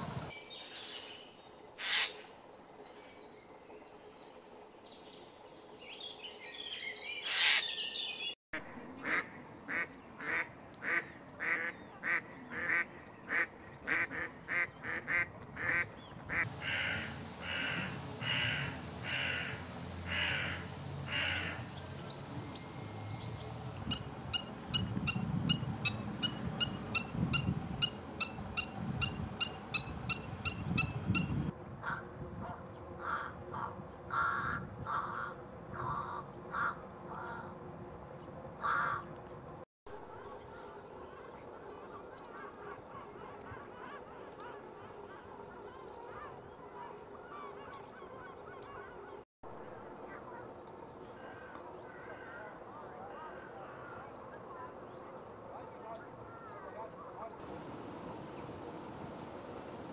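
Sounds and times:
short harsh bird calls: 0:01.8 - 0:02.2, 0:07.2 - 0:08.0
crow cawing: 0:16.3 - 0:21.6, 0:38.6 - 0:39.0.

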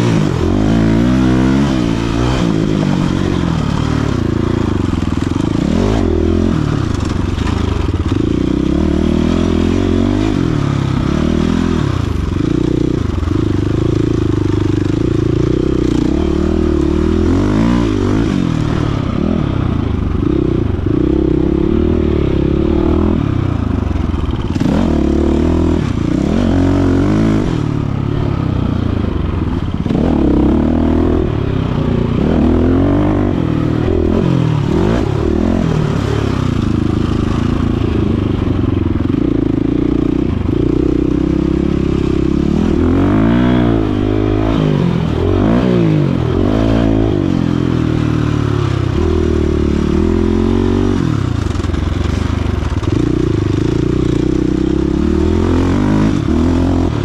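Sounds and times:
dirt bike engine revving: 0:00.0 - 0:57.0.

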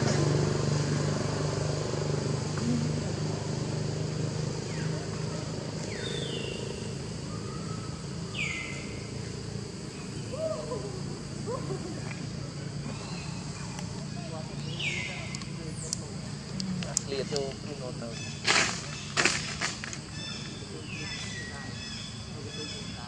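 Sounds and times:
vehicle engine hum: 0:00.0 - 0:23.0
faint wavering calls: 0:02.0 - 0:17.3.

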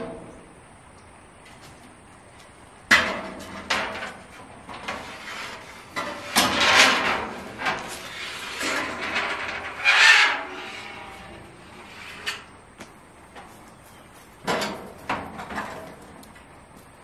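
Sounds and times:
metal siding clattering and scraping: 0:02.5 - 0:13.6, 0:14.4 - 0:16.6.

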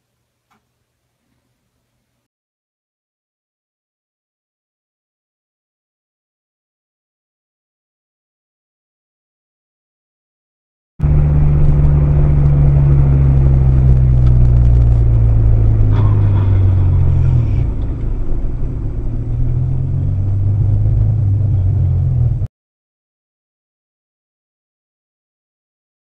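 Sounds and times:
car engine and road noise: 0:11.0 - 0:22.5.

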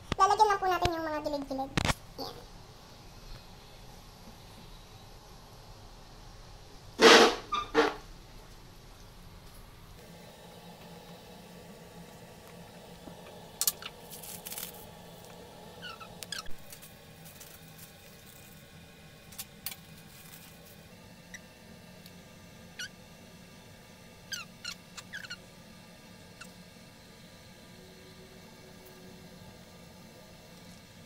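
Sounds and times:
piping bag squeaking: 0:15.8 - 0:16.8, 0:24.3 - 0:25.4.

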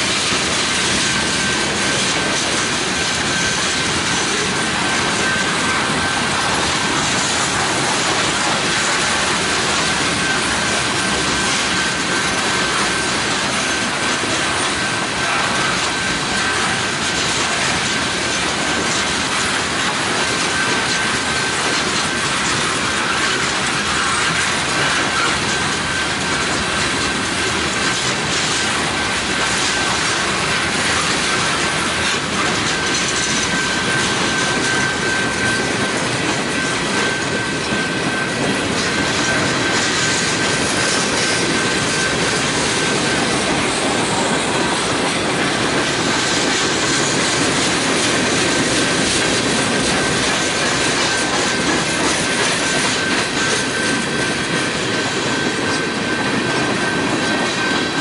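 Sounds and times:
freight train wheels on rails: 0:00.0 - 0:58.0.

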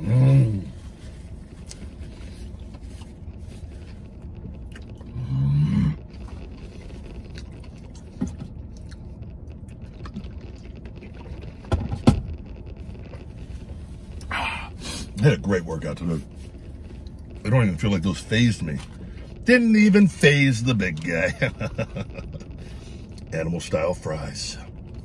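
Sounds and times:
man chewing: 0:00.0 - 0:15.2, 0:21.5 - 0:23.3
vehicle cab hum: 0:00.0 - 0:25.0.

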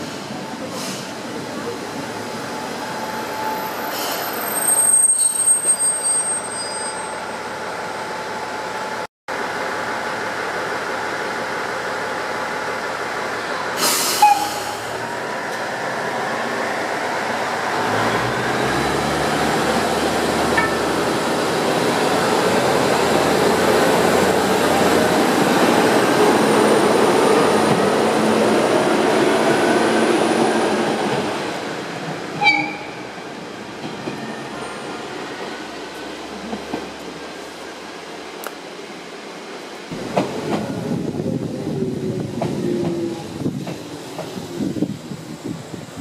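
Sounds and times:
train brakes squealing: 0:02.6 - 0:07.6, 0:13.8 - 0:15.0, 0:32.4 - 0:33.1
short air hiss: 0:13.8 - 0:14.9.

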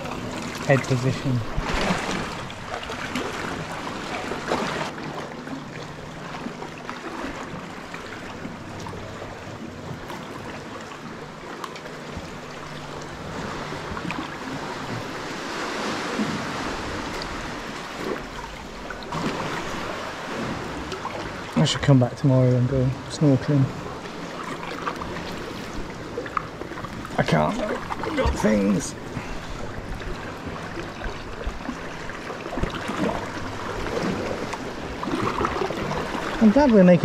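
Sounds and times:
water lapping against rock and hull: 0:00.0 - 0:37.0.

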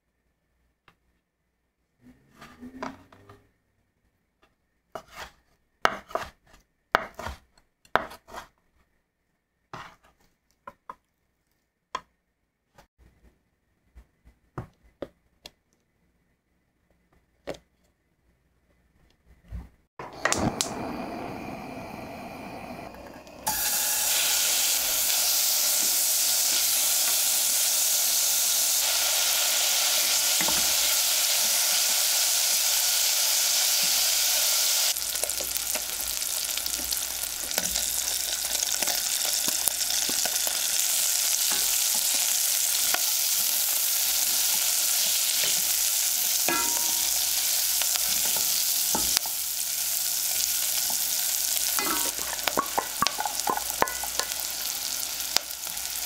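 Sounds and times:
knife chopping on wooden board: 0:05.0 - 0:06.4, 0:07.0 - 0:08.5
bacon sizzling in pot: 0:20.0 - 0:56.0.

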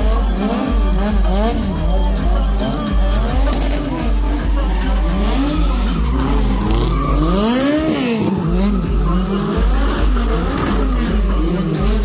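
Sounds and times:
car engines revving: 0:00.0 - 0:12.0
tyres squealing on asphalt: 0:00.0 - 0:12.0.

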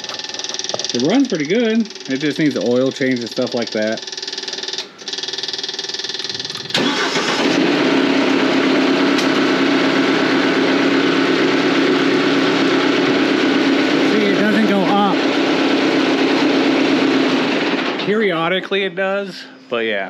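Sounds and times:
diesel concrete saw engine running: 0:06.2 - 0:18.5.

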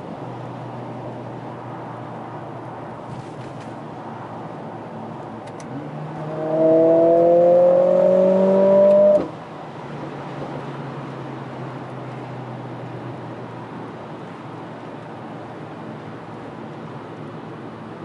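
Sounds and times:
road noise: 0:00.0 - 0:18.0
car engine revving hard: 0:05.7 - 0:09.3.

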